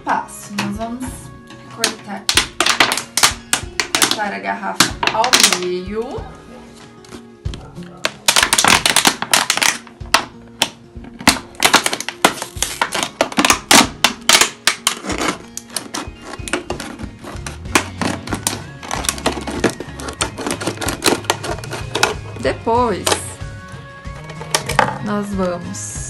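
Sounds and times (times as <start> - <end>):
soft background music: 0.0 - 26.0
scissors snipping plastic: 1.8 - 5.7, 7.1 - 22.4
plastic bottle crackling: 1.8 - 5.9, 6.8 - 25.6.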